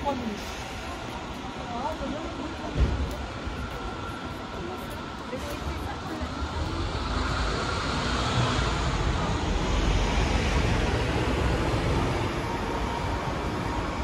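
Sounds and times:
bus engine rumbling: 0:00.0 - 0:14.0.

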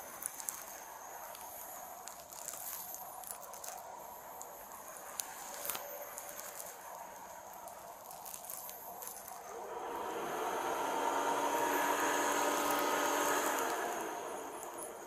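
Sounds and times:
small clicks and crackles: 0:00.0 - 0:10.3, 0:11.1 - 0:15.0.

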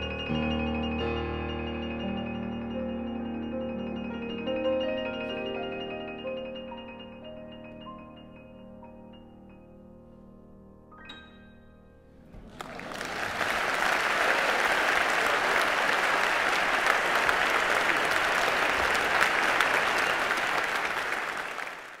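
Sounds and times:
audience applauding: 0:12.4 - 0:22.0.

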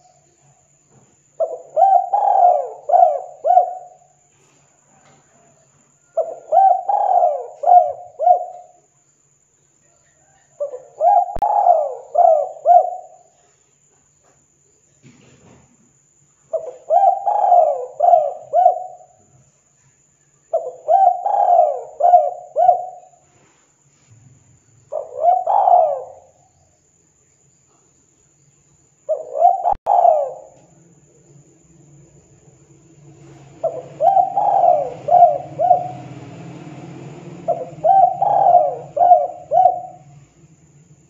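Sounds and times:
dove cooing: 0:01.4 - 0:04.2, 0:05.0 - 0:08.8, 0:10.2 - 0:13.4, 0:16.5 - 0:19.2, 0:20.5 - 0:23.2, 0:24.9 - 0:26.4, 0:29.1 - 0:30.8, 0:33.2 - 0:40.5.

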